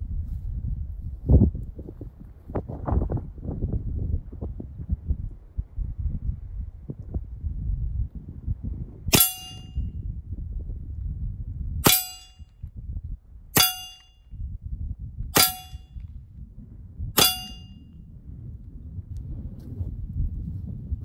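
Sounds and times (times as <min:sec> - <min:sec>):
air pistol shots: 0:09.1 - 0:09.7, 0:11.8 - 0:12.4, 0:15.4 - 0:15.8, 0:17.2 - 0:17.7
pellet clanging on steel target: 0:09.2 - 0:09.8, 0:11.8 - 0:12.4, 0:13.6 - 0:14.2, 0:15.4 - 0:15.8, 0:17.2 - 0:17.8.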